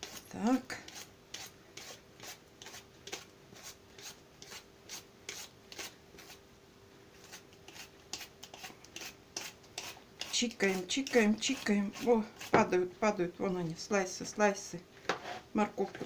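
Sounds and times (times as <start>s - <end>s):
vegetable peeler scraping zucchini: 0.0s - 6.4s, 7.2s - 12.8s.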